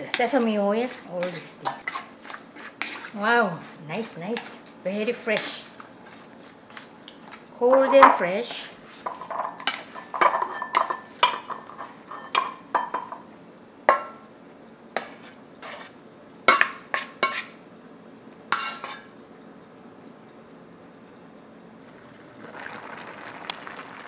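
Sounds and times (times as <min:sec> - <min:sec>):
spatula scraping metal bowl: 0:00.0 - 0:04.6, 0:15.0 - 0:16.0, 0:16.9 - 0:17.6, 0:18.5 - 0:19.1.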